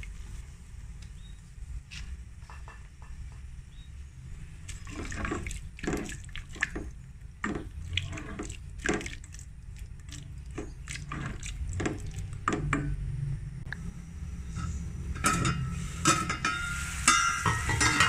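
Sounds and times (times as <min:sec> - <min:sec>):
soup sloshing in a metal pot: 0:04.6 - 0:12.8.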